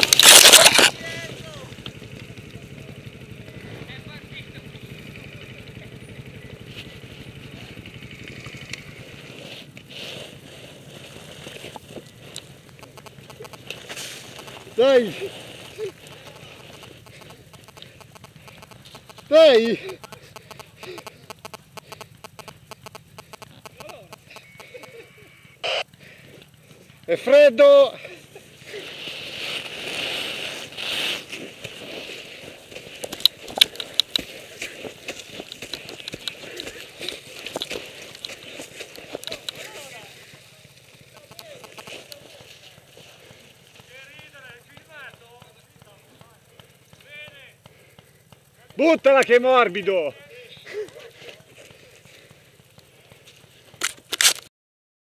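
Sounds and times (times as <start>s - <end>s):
motorcycle engine running: 0.0s - 54.1s
footsteps crunching through snow: 9.1s - 21.7s, 28.7s - 44.1s
rustling handling noise: 28.7s - 45.1s.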